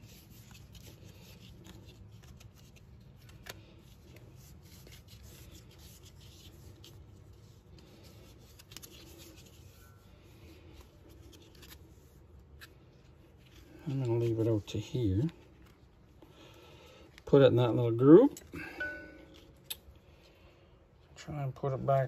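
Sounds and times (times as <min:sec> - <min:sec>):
rope rubbing and rustling: 0:00.0 - 0:16.3.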